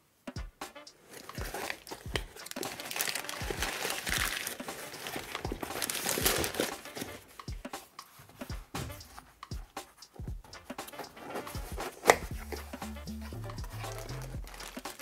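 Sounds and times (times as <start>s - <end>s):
crumpled paper crinkling: 1.0s - 7.3s, 13.7s - 15.0s.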